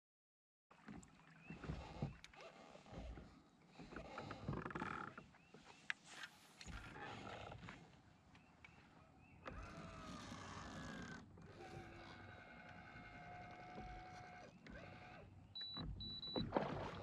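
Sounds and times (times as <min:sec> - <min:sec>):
small mechanism whirring: 0:09.5 - 0:15.7.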